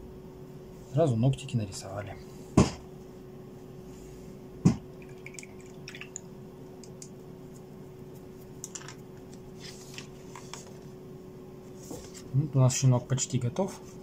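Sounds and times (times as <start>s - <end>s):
steady low hum: 0.0s - 14.0s
paper rustling: 8.7s - 10.9s.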